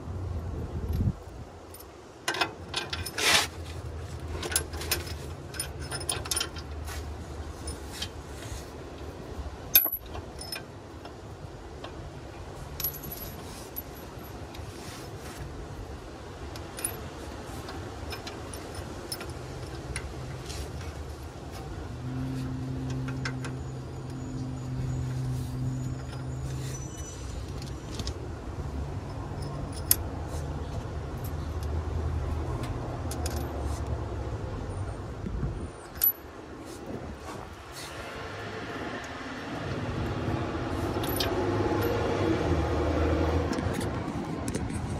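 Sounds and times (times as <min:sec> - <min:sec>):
wrench and bolts clinking: 0:01.0 - 0:03.6, 0:04.2 - 0:07.0, 0:09.7 - 0:12.1, 0:12.7 - 0:14.7, 0:16.5 - 0:21.0, 0:28.9 - 0:31.8, 0:32.6 - 0:33.8, 0:35.8 - 0:36.3, 0:40.8 - 0:42.0.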